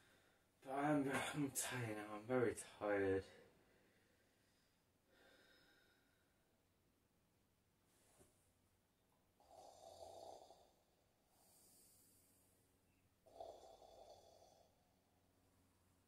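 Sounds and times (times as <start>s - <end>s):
soft breath: 3.4s - 6.5s, 11.3s - 12.7s
person snoring faintly: 9.4s - 12.5s, 13.2s - 14.9s.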